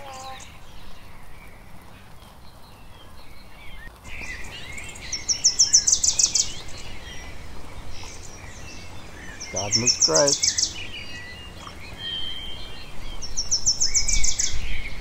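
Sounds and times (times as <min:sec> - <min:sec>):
birds chirping: 0:00.0 - 0:15.0
steady rain falling: 0:00.0 - 0:15.0.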